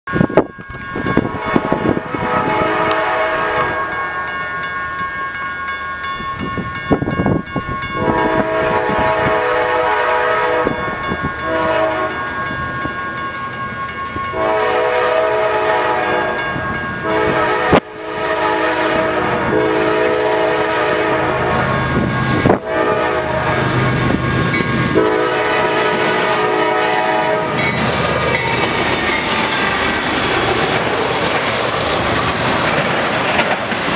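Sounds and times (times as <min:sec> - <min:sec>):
train air horn blasts: 0:01.1 - 0:04.4, 0:08.0 - 0:12.2, 0:14.3 - 0:23.8, 0:24.9 - 0:27.8
diesel locomotive rumble: 0:13.9 - 0:33.9.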